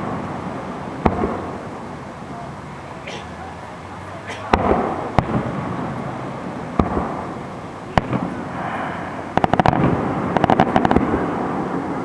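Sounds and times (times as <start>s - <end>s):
fireworks bangs: 0.0s - 12.0s
fireworks rapid pops: 1.0s - 1.7s, 4.3s - 5.8s, 6.7s - 11.6s.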